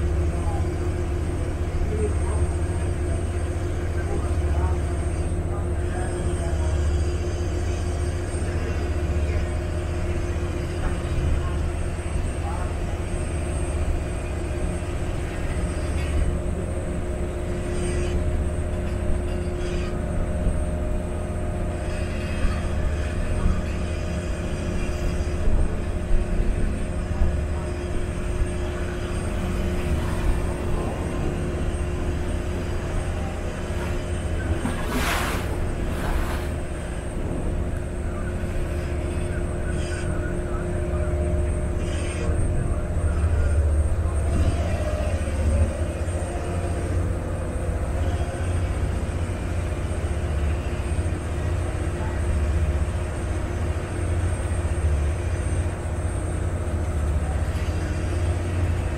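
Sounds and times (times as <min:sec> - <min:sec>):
boat engine drone: 0:00.0 - 0:58.9
wind: 0:00.0 - 0:58.9
water noise: 0:28.0 - 0:39.0.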